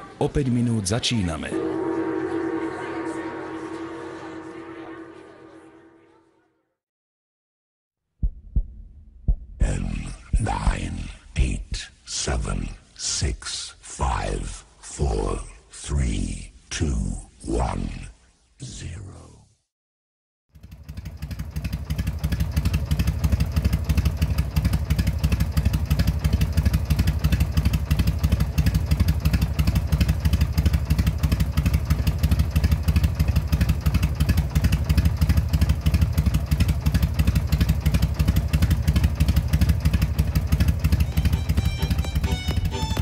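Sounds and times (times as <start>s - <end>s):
motorcycle engine running: 20.5s - 43.0s.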